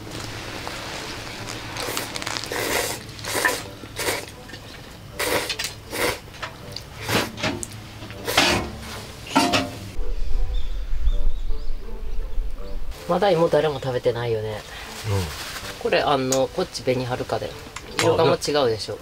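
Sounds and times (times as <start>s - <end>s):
bowls and chopsticks clattering: 8.3s - 9.8s.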